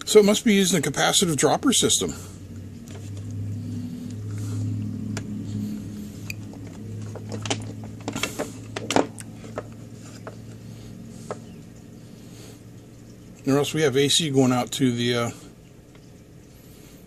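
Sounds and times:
low background hum: 0.0s - 17.0s.

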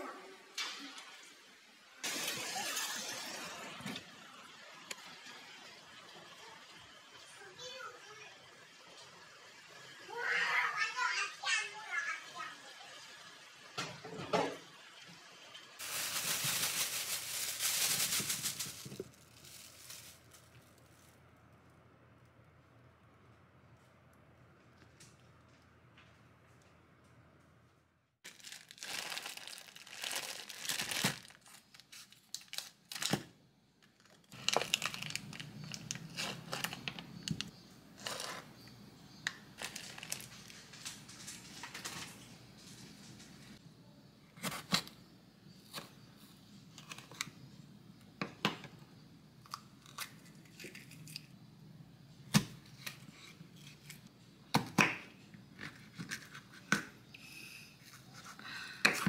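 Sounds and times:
plastic wrapping rustling and tearing: 15.8s - 21.6s, 28.2s - 38.3s, 39.6s - 43.6s.

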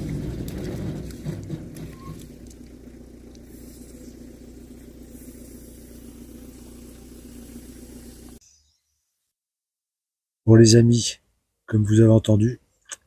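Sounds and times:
pump engine running: 0.0s - 8.4s.

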